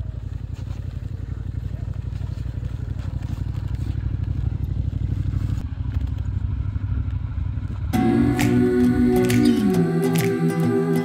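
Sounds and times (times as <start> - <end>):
motorcycle engine idling: 0.0 - 10.3.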